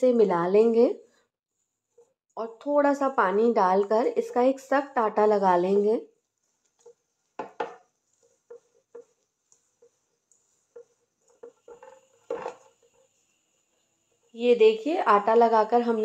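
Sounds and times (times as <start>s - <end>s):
dough knocking against metal bowl: 7.4s - 7.8s.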